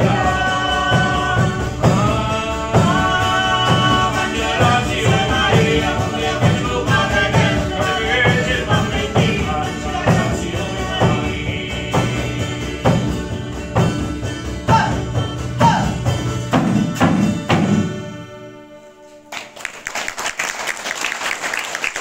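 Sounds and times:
man singing: 0:00.0 - 0:13.8
steady drum beat: 0:00.0 - 0:18.0
audience applause: 0:19.3 - 0:22.0.

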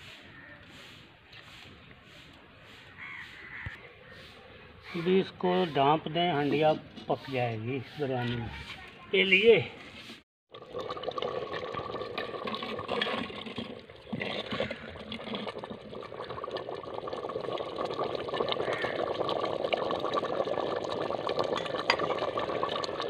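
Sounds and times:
curry bubbling in a pot: 0:10.5 - 0:23.0.

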